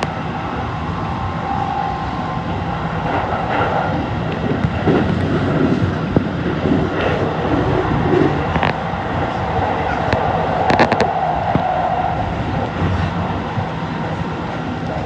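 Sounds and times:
electric train rumbling: 0.0 - 15.0
low motor hum: 0.0 - 15.0
sharp clicks and knocks: 10.0 - 11.7.

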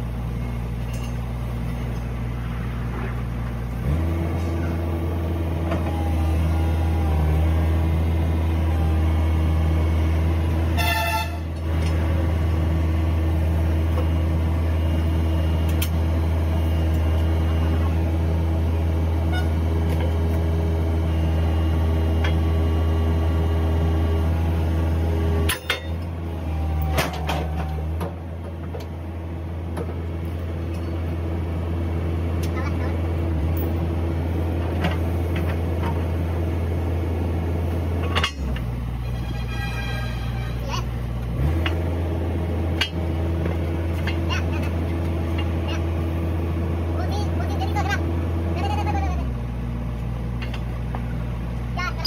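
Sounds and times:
high-pitched toot: 39.0 - 40.9.

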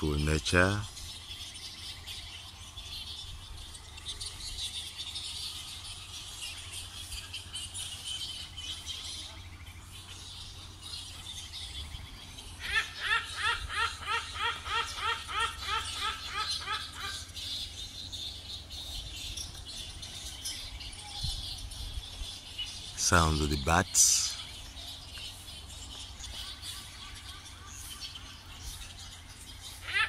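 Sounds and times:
bats squeaking chatter: 0.0 - 30.0
hornbill calling: 0.0 - 30.0.

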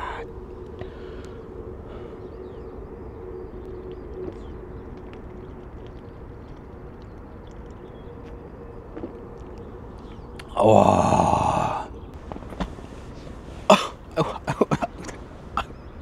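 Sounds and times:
faint ticks and chirps: 0.0 - 11.3
steady low rumble: 0.0 - 16.0.

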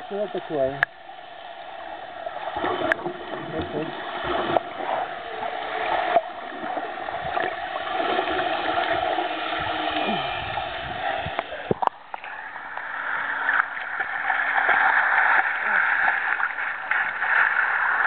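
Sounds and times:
muffled underwater water noise: 0.0 - 18.0
water splashing and lapping: 2.0 - 18.0.

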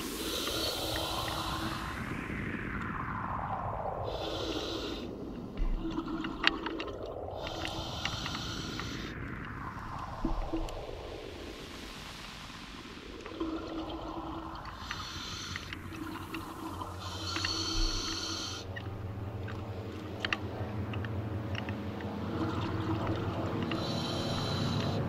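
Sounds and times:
hissing regulator inhalations: 0.0 - 1.9, 7.4 - 9.1, 14.7 - 18.8, 23.6 - 25.0.

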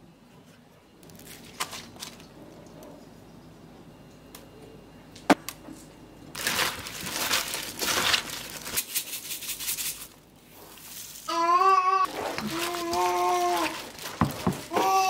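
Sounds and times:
seeds shaken from plastic shaker: 8.7 - 10.2.

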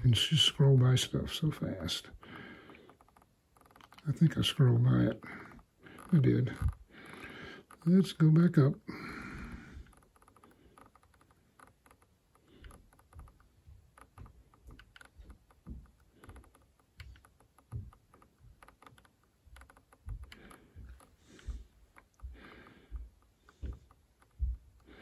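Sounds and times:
scroll roller clicks: 2.7 - 5.1, 9.8 - 25.0.

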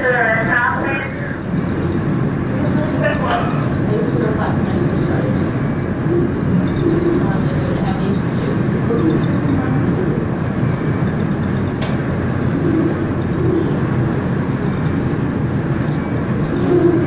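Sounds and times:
murmur of voices: 0.0 - 11.8
elevator car rumbling: 0.0 - 17.0.

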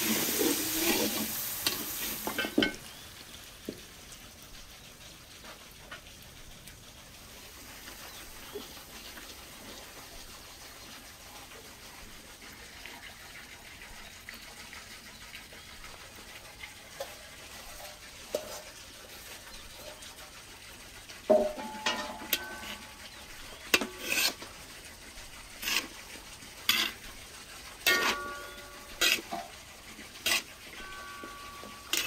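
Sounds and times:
metal skimmer knocking on pot: 21.3 - 22.8.

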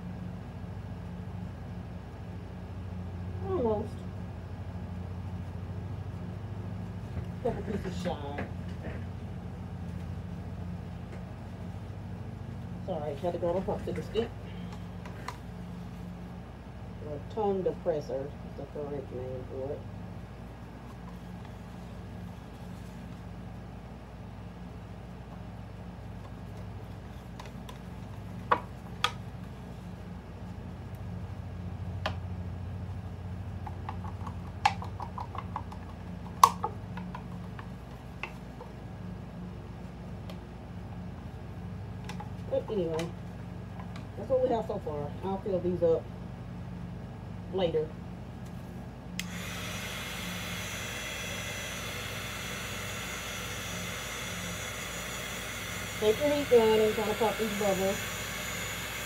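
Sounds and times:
steady low hum: 0.0 - 59.0
heat gun blowing hiss: 49.2 - 59.0.

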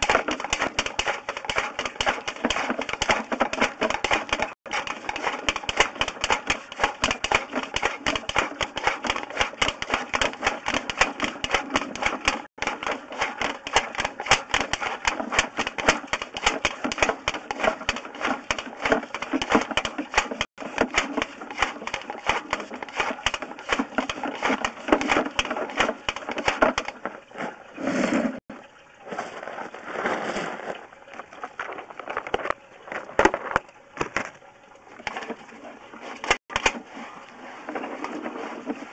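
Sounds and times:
scraping and rustling: 29.0 - 34.4, 35.0 - 38.9.

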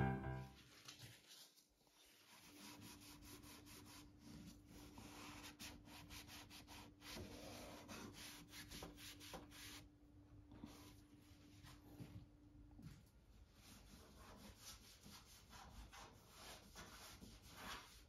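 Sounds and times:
paper towel rubbing on plastic: 0.7 - 9.9, 13.4 - 18.0.

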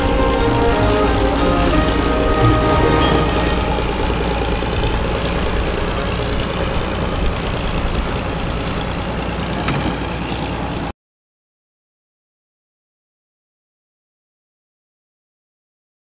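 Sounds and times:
boat engine rumble: 0.0 - 10.9
rushing water: 0.0 - 10.9.

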